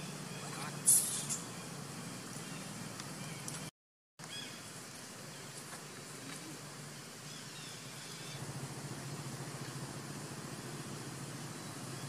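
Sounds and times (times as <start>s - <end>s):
even hiss: 0.8s - 1.5s
low hum: 5.8s - 12.0s.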